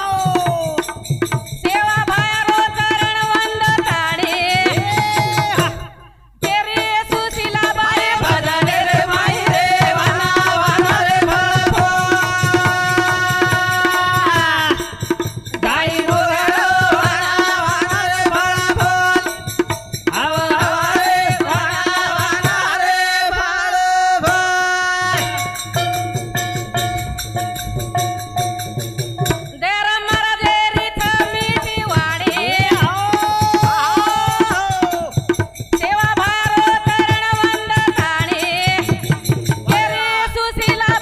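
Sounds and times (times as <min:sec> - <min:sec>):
barrel drum beat: 0:00.0 - 0:22.7, 0:24.3 - 0:41.0
woman singing: 0:01.6 - 0:15.0, 0:29.4 - 0:41.0
small hand cymbals: 0:25.0 - 0:29.6.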